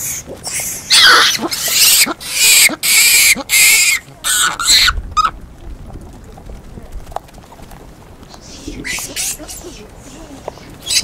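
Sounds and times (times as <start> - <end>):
monkeys screeching: 0.0 - 5.3, 8.5 - 9.5, 10.8 - 11.0
monkey stuttering call: 0.0 - 5.4, 8.5 - 9.6, 10.8 - 11.0.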